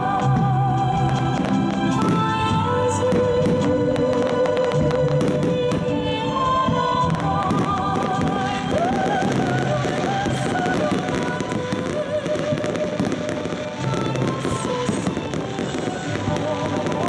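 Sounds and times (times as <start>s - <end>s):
music playing: 0.0s - 17.0s
firework shells bursting: 6.6s - 17.0s
ground fountains firing: 6.6s - 17.0s.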